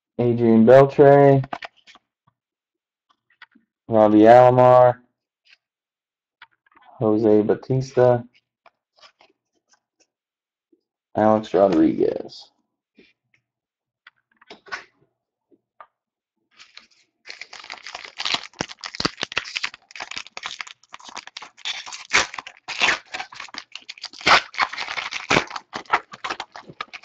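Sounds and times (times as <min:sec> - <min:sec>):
plastic wrapper crinkling: 0:16.6 - 0:27.0.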